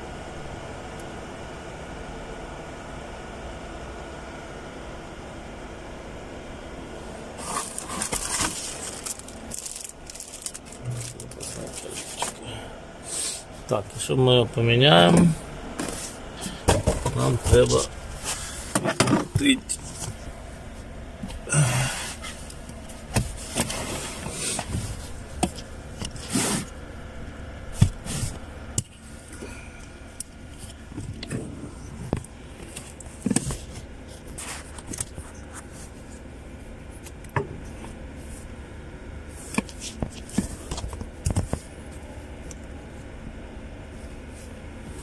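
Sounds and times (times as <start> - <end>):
knocks and scrapes of handling: 7.4 - 12.4, 15.1 - 21.4, 22.0 - 26.8, 30.5 - 36.3, 39.3 - 42.1.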